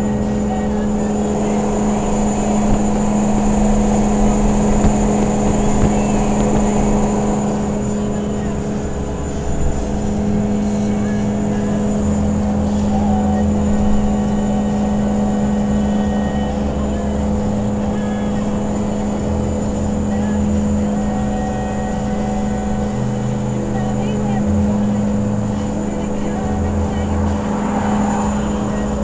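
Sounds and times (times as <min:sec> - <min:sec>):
wind noise: 0:00.0 - 0:20.0
diesel engine drone: 0:00.0 - 0:29.0
road noise: 0:00.0 - 0:29.0.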